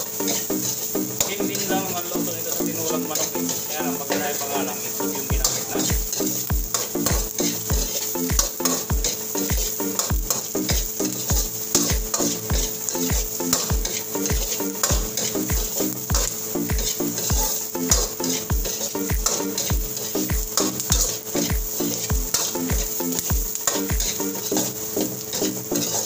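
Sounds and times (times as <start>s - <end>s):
aromatics sizzling in oil: 0.0s - 26.0s
ladle scraping a wok: 0.0s - 26.0s
music with thumping beat: 5.3s - 24.7s.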